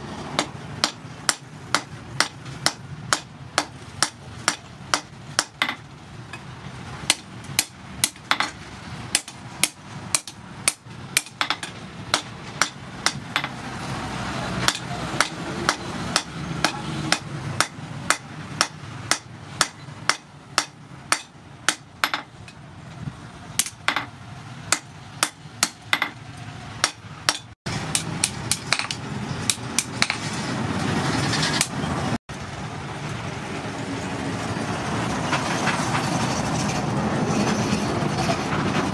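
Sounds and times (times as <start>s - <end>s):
steady background noise: 0.0s - 38.9s
hammer striking metal on anvil: 0.4s - 6.4s, 7.1s - 13.6s, 14.6s - 22.6s, 23.6s - 24.1s, 24.7s - 26.2s, 26.8s - 30.2s.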